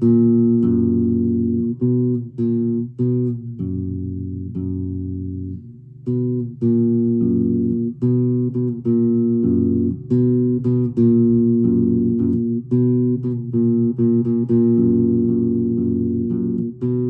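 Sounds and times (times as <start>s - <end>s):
bass guitar riff: 0.0s - 17.0s.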